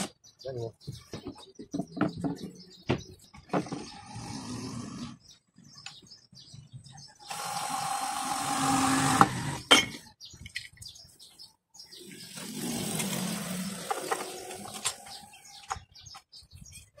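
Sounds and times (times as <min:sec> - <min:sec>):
cordless drill boring: 0:07.3 - 0:09.6.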